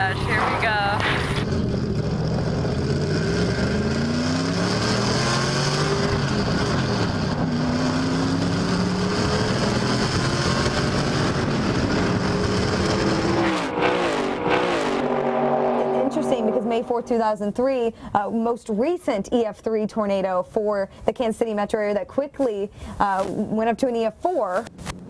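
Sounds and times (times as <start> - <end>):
wind and road noise: 0.0 - 17.9, 23.0 - 25.0
race car engine revving: 1.3 - 17.4.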